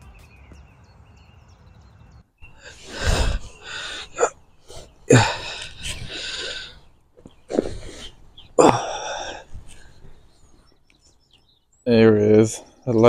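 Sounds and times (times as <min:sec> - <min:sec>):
person breathy exhales and grunts: 0:02.5 - 0:06.8, 0:07.4 - 0:10.1.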